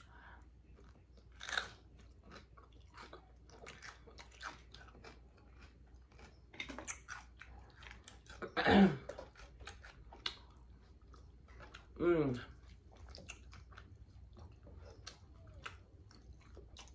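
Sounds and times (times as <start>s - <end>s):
chewing mouth clicks: 0.7s - 16.9s
crunching bite: 1.2s - 10.6s.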